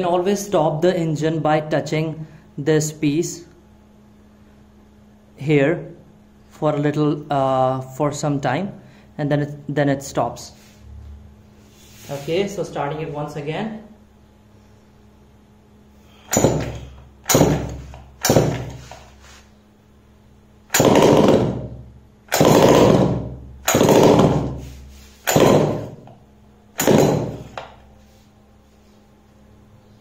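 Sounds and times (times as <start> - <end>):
recoil starter pulls cranking engine: 16.3 - 19.0, 20.7 - 21.6, 22.3 - 24.6, 25.2 - 26.0, 26.8 - 27.6.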